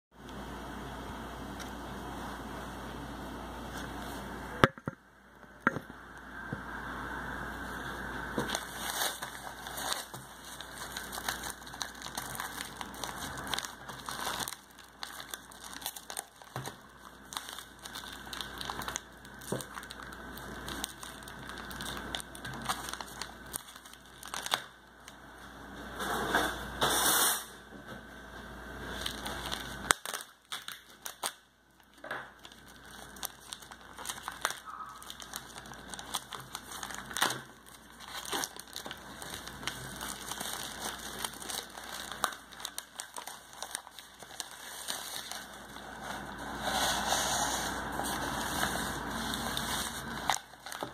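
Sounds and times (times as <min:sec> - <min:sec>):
plastic wrap crinkling: 0:07.1 - 0:25.2, 0:28.8 - 0:50.9.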